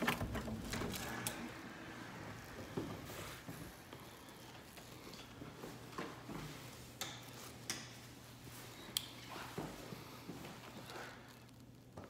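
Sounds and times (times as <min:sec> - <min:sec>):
footsteps on hardwood floor: 0:01.7 - 0:06.9, 0:09.4 - 0:11.2.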